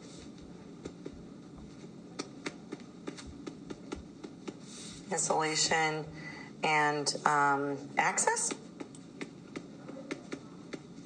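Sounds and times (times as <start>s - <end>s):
stylus tapping on tablet screen: 0.8s - 4.7s, 8.3s - 11.0s.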